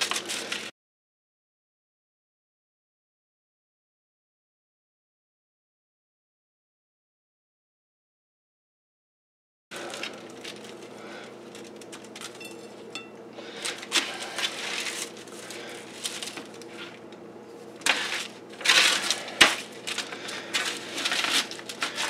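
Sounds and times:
foil crinkling: 0.0s - 0.7s, 9.7s - 22.0s
spatula scraping baking sheet: 0.0s - 0.7s, 12.3s - 17.0s, 17.7s - 22.0s
faint steady hum: 9.7s - 22.0s.

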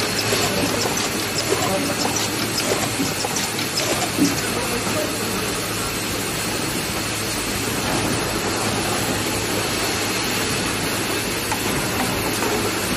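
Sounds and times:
machine mechanical din: 0.0s - 4.9s.

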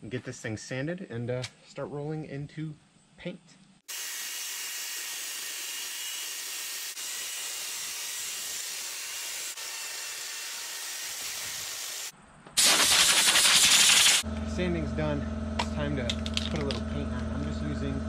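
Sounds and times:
drill-driven sander on wood: 3.9s - 14.2s
fast rattle: 12.6s - 14.2s.

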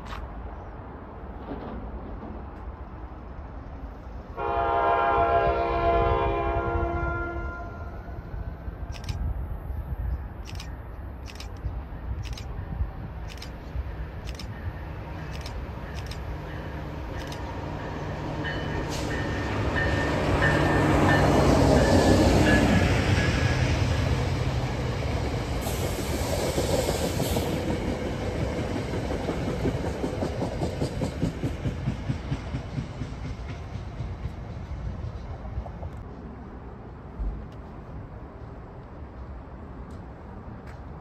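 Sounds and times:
train engine hum: 0.0s - 41.0s
train wheels clicking over rail joints: 10.4s - 17.7s, 25.2s - 36.1s.

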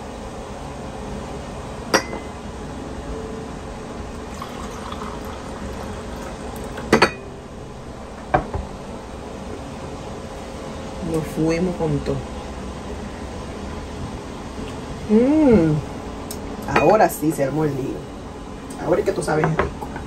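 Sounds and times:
coffee pouring into a cup: 4.2s - 7.0s.

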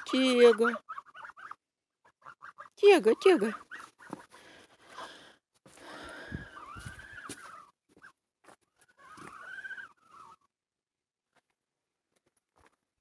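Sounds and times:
geese calling: 0.0s - 4.5s, 6.0s - 8.1s, 8.9s - 10.5s.

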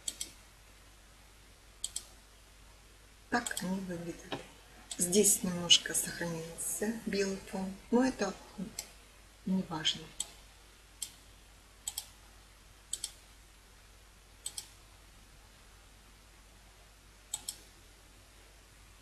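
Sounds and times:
computer mouse clicks: 0.0s - 0.4s, 1.8s - 2.1s, 11.0s - 11.2s, 11.8s - 12.2s, 12.9s - 13.2s, 14.4s - 14.8s, 17.3s - 17.7s
faint steady hiss: 0.0s - 19.0s.

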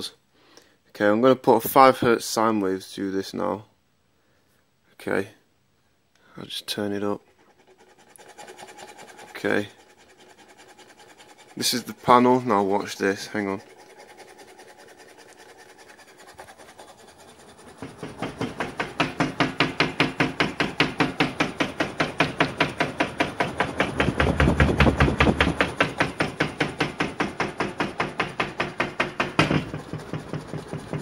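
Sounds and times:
wall panel rattling: 17.7s - 31.0s
sharp knock: 17.8s - 31.0s.

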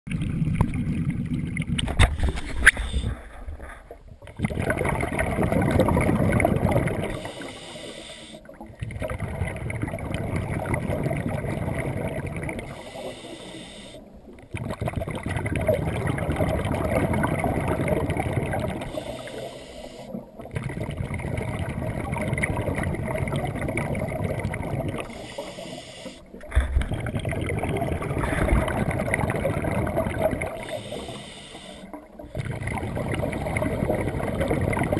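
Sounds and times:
diver breathing through regulator: 7.0s - 8.5s, 12.6s - 14.2s, 18.8s - 20.3s, 25.0s - 27.0s, 30.5s - 32.0s.

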